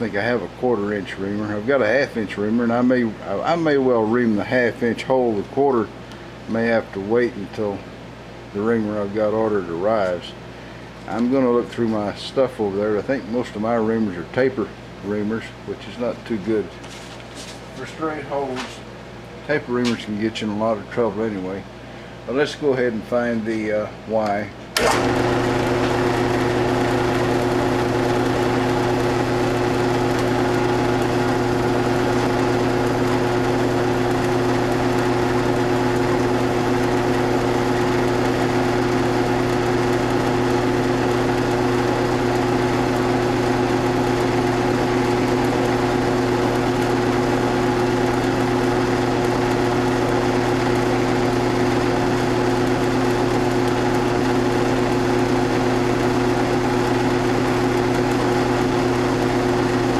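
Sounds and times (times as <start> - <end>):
milling machine motor humming: 24.2 - 59.9.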